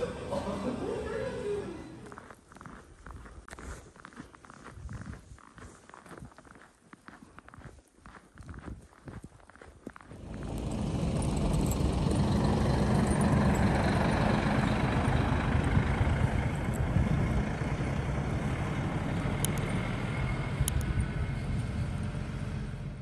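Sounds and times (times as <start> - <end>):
bus engine passing: 0.0 - 2.3, 10.1 - 23.0.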